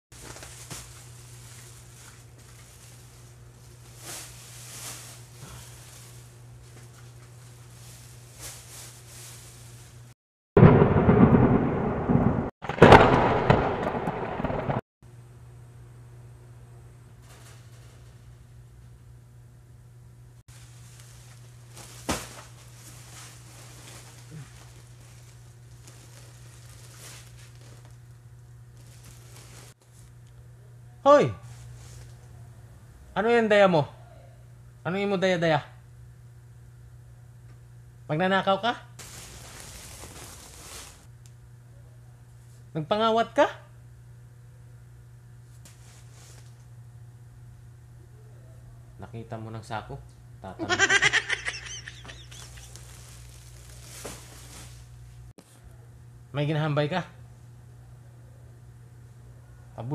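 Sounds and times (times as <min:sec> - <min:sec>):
soft rustles: 0:00.2 - 0:10.1, 0:20.5 - 0:28.1, 0:28.7 - 0:30.2, 0:31.4 - 0:32.3, 0:39.0 - 0:41.1, 0:45.5 - 0:46.6, 0:52.0 - 0:55.3
steady low hum: 0:00.2 - 0:59.9
faint rustling: 0:39.0 - 0:41.1, 0:52.3 - 0:55.3.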